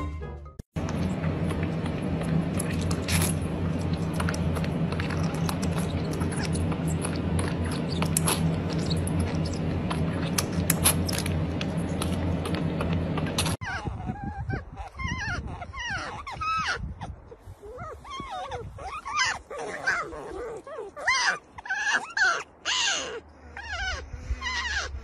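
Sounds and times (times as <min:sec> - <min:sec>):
puppy suckling from a bottle: 0:00.8 - 0:17.0
steady low hum: 0:00.8 - 0:21.8, 0:22.4 - 0:25.0.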